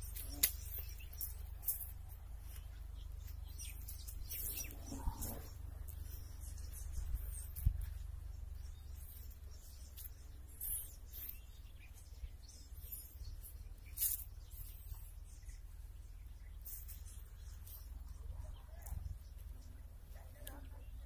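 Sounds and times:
wind rumble on microphone: 0.0 - 13.5
birds chirping: 0.0 - 21.0.

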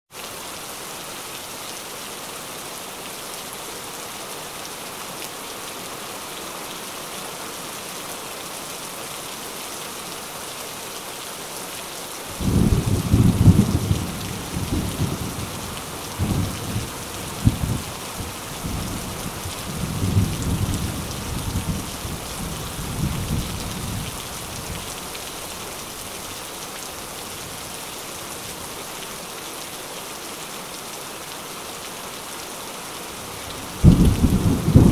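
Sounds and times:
heavy rain: 0.1 - 34.9
rolling thunder rumble: 33.8 - 34.9.

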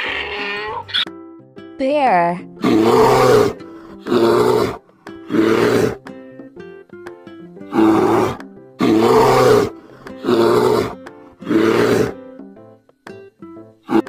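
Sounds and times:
light background music: 0.0 - 14.0
bear roaring: 2.6 - 6.1, 7.7 - 12.2.

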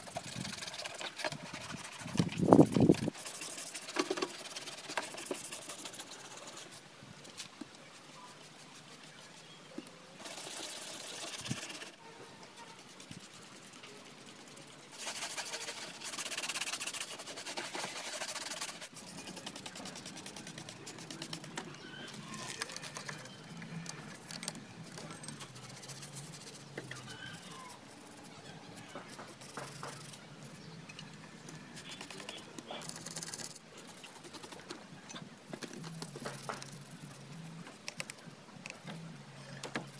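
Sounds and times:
scrubbing by hand: 0.0 - 6.8, 10.2 - 12.0, 12.6 - 30.6.

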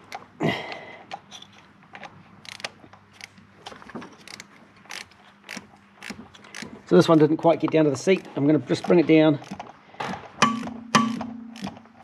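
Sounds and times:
ratchet clicking: 10.4 - 11.8.

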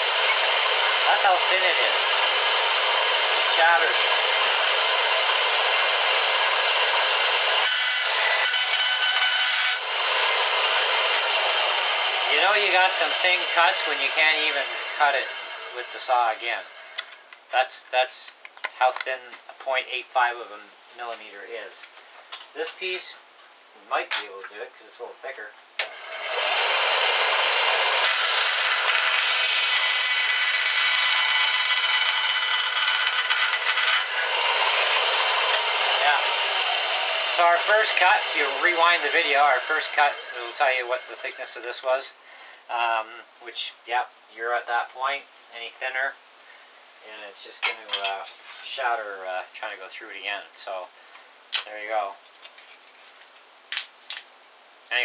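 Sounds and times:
blade rasping through wood: 0.0 - 16.5, 26.0 - 41.6
bandsaw running: 0.0 - 17.0, 25.9 - 41.6.

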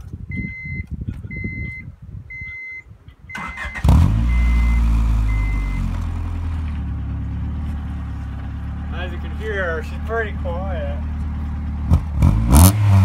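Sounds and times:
dashboard warning chime beeping: 0.3 - 5.9
engine starter cranking: 3.4 - 4.7
car engine idling: 4.3 - 12.2.

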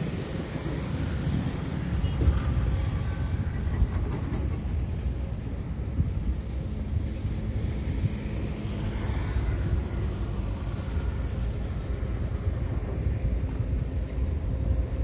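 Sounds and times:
heavy machine engine rumbling: 0.0 - 7.5.

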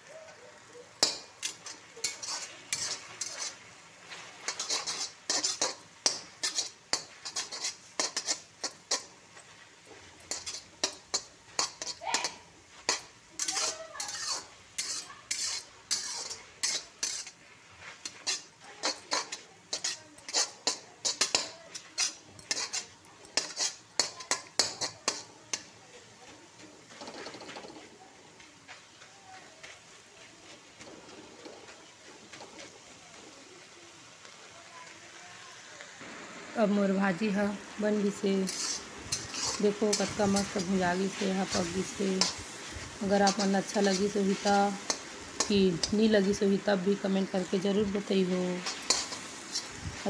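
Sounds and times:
spatula scraping metal pan: 0.9 - 25.8, 37.1 - 50.0.

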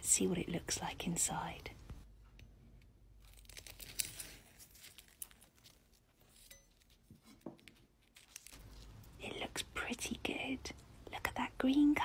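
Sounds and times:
paper crinkling: 3.2 - 9.2.

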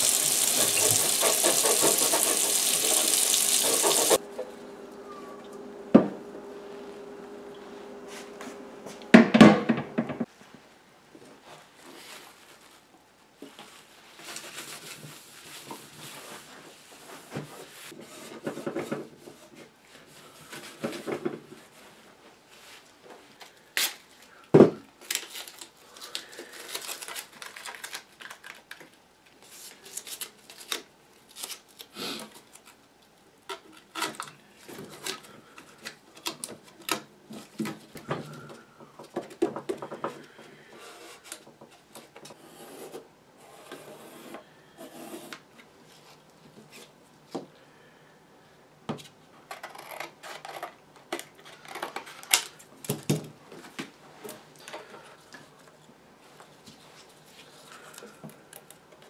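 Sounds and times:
masking tape rubbing: 0.0 - 4.2.

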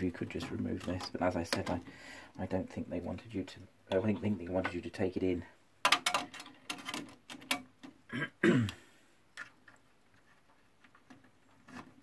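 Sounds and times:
person clearing throat: 8.1 - 8.9.

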